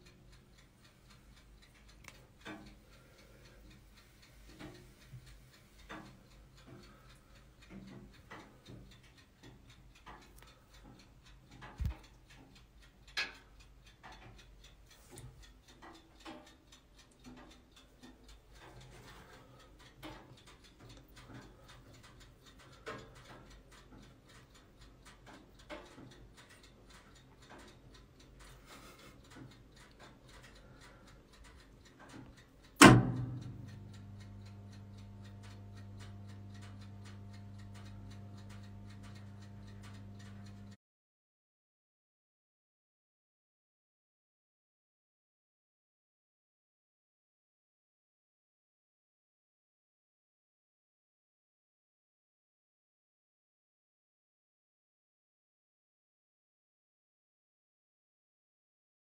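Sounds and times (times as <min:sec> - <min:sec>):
faint ticks and soft knocks: 0:00.0 - 0:40.8
low electrical hum: 0:32.7 - 0:40.8.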